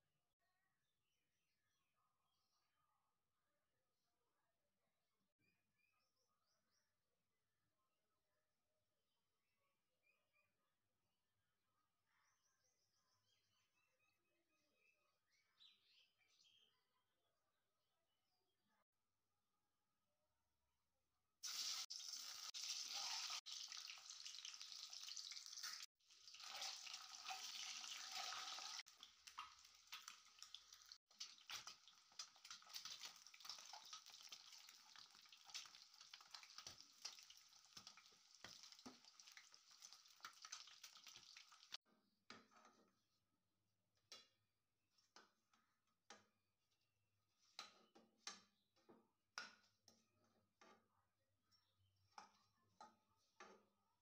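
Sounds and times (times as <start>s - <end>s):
eggs sizzling in hot oil: 21.4s - 41.8s.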